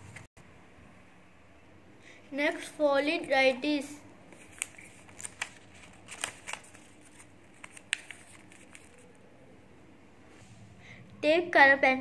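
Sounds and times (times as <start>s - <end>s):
paper crackling and rustling: 4.3s - 9.2s.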